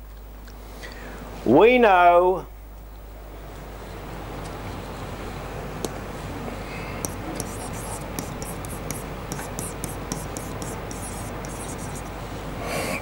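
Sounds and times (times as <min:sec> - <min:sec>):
pen scratching on whiteboard: 0:07.0 - 0:12.2.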